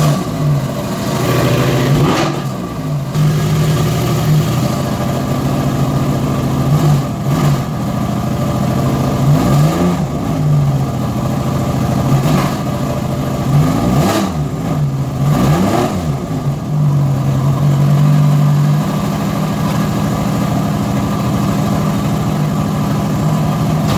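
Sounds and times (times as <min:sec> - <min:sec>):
car engine idling and revving: 0:00.0 - 0:23.9.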